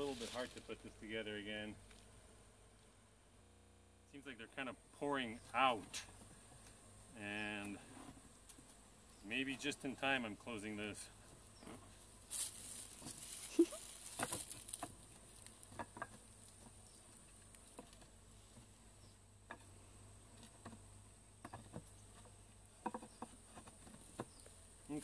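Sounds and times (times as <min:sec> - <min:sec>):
wooden bars knocking and scraping: 0:14.0 - 0:16.8, 0:21.4 - 0:24.5.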